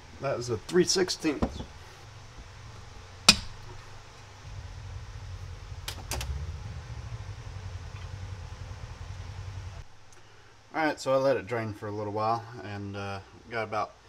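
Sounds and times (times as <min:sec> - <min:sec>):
low rumble of tilted unit: 0:00.0 - 0:10.2
quiet knocks: 0:01.4 - 0:04.0.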